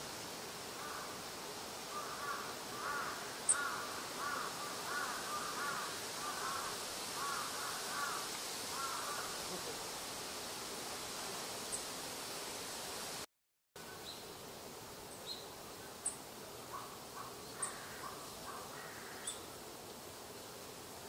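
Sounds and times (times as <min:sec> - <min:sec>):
steady background hiss: 0:00.0 - 0:21.0
crows cawing: 0:00.8 - 0:01.2, 0:01.9 - 0:09.4, 0:16.7 - 0:19.4.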